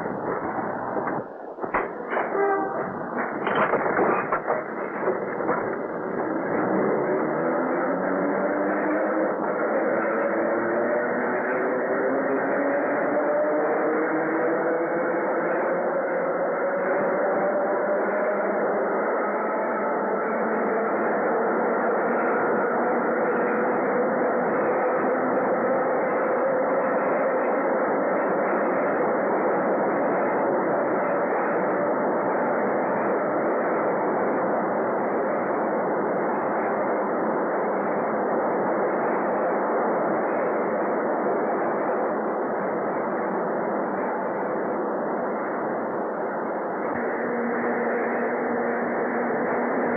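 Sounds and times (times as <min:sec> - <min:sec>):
train wheels rumbling on rails: 0:00.0 - 0:11.6
faint whine: 0:00.0 - 0:12.8, 0:15.6 - 0:49.9.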